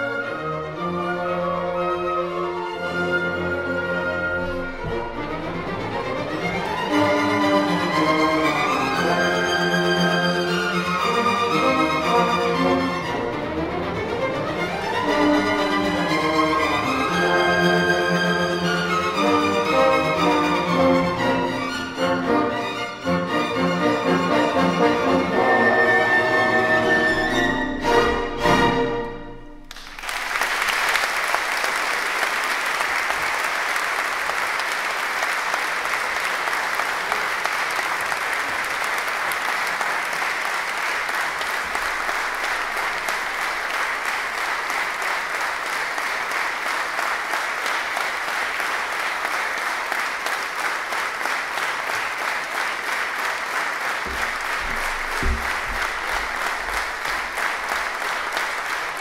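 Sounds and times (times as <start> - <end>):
audience applause: 4.2 - 21.2, 29.6 - 59.0
low thumps: 54.1 - 57.0.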